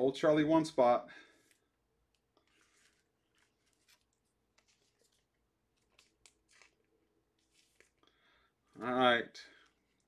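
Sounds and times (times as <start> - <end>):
cards and box handled on table: 1.5 - 6.8, 7.4 - 8.0.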